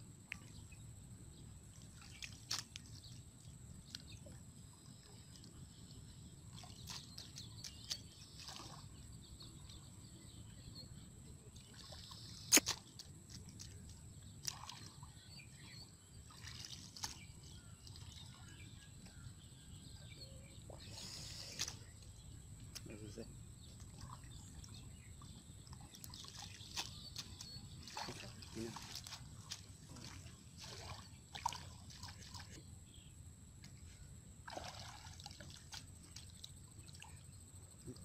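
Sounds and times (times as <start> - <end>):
hands scooping wet mud: 26.1 - 32.6.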